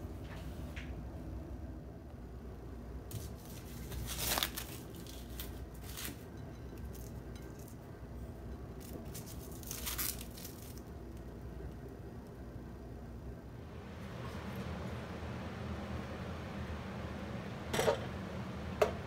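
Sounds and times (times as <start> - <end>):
plastic film crinkling: 3.1 - 6.3, 8.8 - 11.0.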